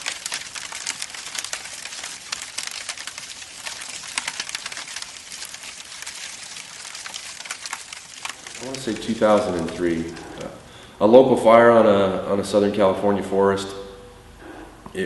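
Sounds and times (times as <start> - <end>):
dense crackling pops: 0.0 - 10.8.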